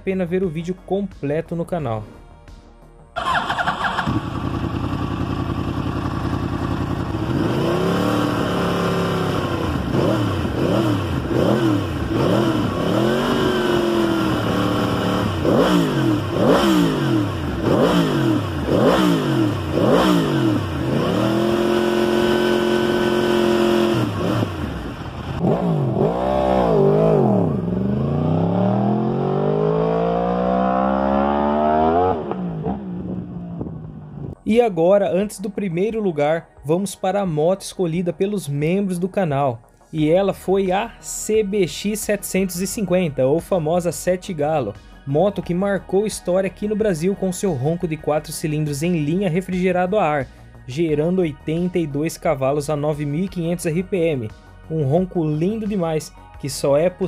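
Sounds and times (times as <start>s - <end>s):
motorcycle engine revving: 3.2s - 34.4s.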